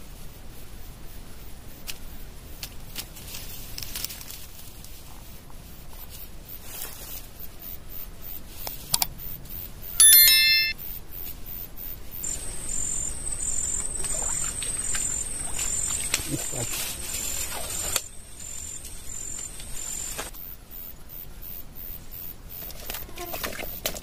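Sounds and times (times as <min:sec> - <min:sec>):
bright bell-like ding: 0:10.0 - 0:10.8
high pulsing chirp: 0:10.0 - 0:10.8
insects chirping: 0:11.9 - 0:22.7.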